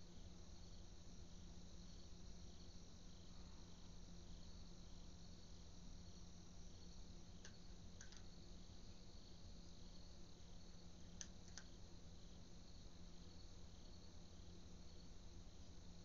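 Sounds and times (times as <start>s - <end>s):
crickets chirping: 0.0s - 16.0s
steady low hum: 0.0s - 16.0s.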